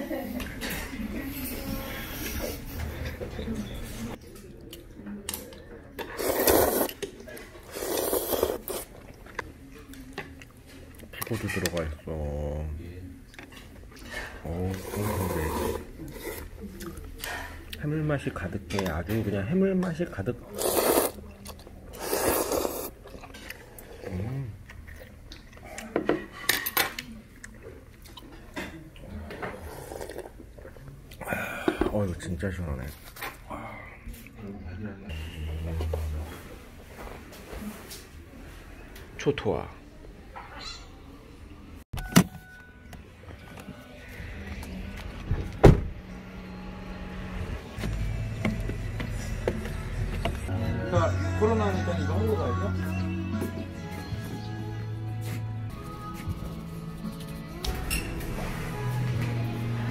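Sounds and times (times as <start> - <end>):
person slurping noodles: 6.1 - 7.0, 7.6 - 9.0, 14.6 - 16.6, 20.4 - 21.3, 21.9 - 24.4, 29.5 - 30.8.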